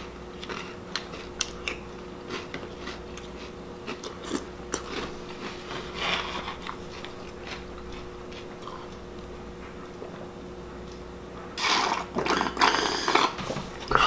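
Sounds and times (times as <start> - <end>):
slurping milk from a bowl: 11.6 - 13.4.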